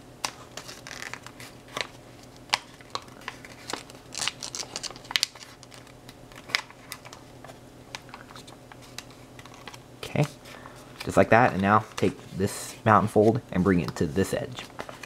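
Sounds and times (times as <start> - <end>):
paper being folded and creased: 0.2 - 10.4, 11.0 - 13.4.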